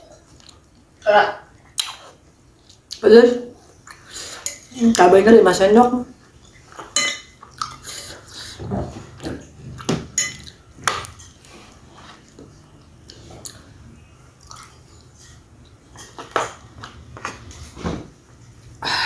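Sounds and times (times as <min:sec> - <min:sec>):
cutlery clinking on plate: 0:06.8 - 0:07.4, 0:09.3 - 0:11.4.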